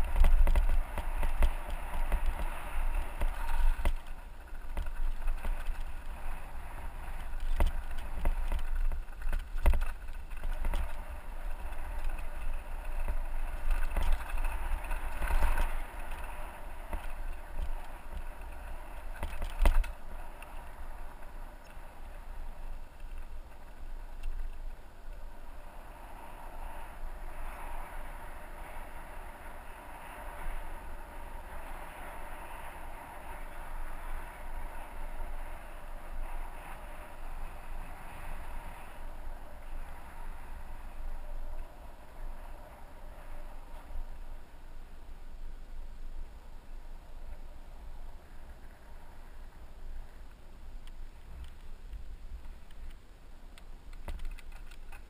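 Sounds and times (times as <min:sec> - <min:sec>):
tyres rolling over gravel: 0:00.0 - 0:25.5
wind buffeting microphone: 0:00.0 - 0:44.6.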